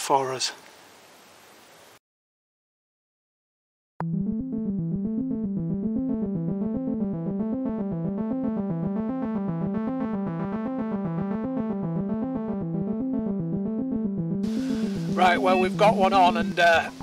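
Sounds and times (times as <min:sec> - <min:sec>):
keyboard music over fast pulse: 0:04.0 - 0:17.0.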